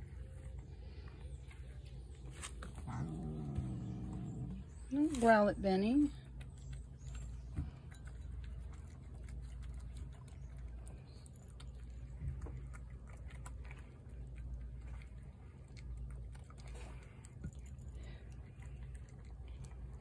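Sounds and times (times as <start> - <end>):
cat crunching dry kibble: 6.0 - 20.0.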